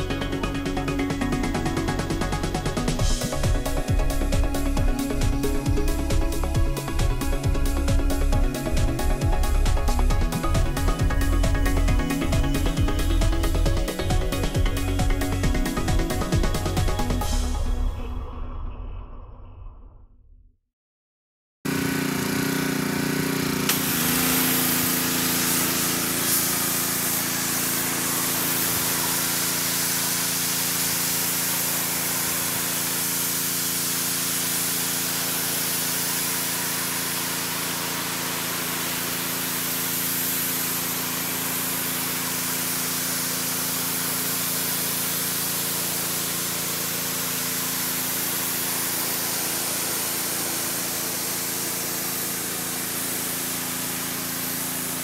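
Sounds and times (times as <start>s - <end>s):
pressure washer water jet hissing: 0.0s - 17.3s, 21.7s - 55.0s
motor humming: 21.7s - 46.7s.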